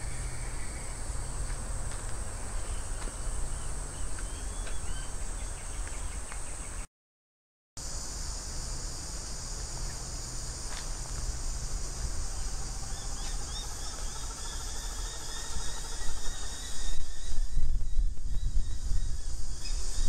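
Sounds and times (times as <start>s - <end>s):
high-pitched insect chorus: 0.0s - 6.8s, 7.8s - 20.0s
wind rumbling on microphone: 9.6s - 20.0s.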